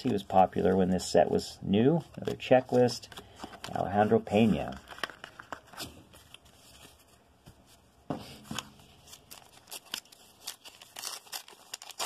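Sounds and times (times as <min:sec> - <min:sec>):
cards being handled: 0:00.0 - 0:01.0, 0:01.7 - 0:12.0
foil wrapper crinkling: 0:04.6 - 0:06.5, 0:09.0 - 0:12.0.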